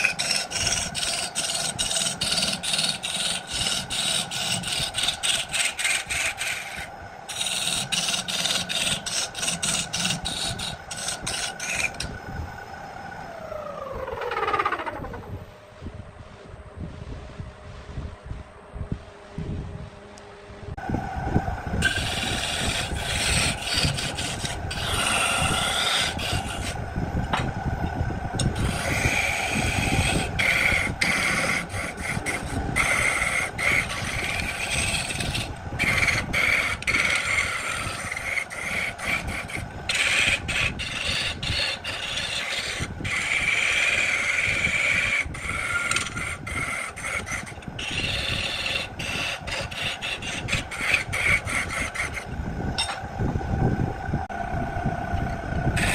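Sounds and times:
turning tool scraping wood: 0.0 - 12.1, 21.8 - 27.4, 28.4 - 53.0.

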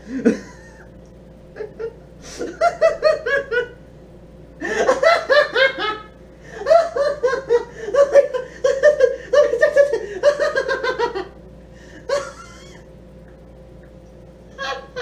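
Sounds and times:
man laughing: 0.0 - 0.9, 1.6 - 3.8, 4.6 - 11.4, 12.0 - 12.9, 14.5 - 15.0.

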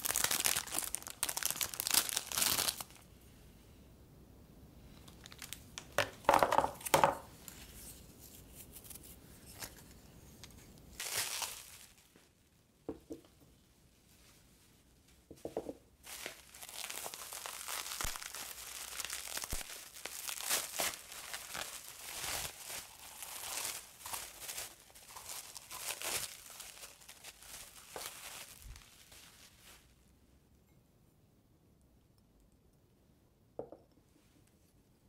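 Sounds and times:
bubble wrap crackling: 0.0 - 3.0, 4.9 - 6.0, 10.9 - 12.5, 16.0 - 30.0.

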